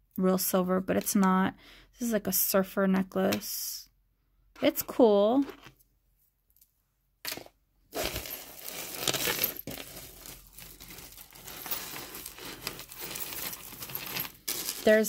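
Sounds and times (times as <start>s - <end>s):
jewelry chains clinking and rattling: 7.9s - 15.0s.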